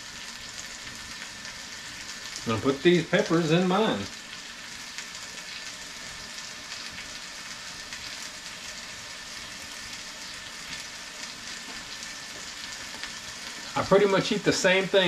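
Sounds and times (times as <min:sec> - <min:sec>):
food sizzling in skillets: 0:00.0 - 0:15.0.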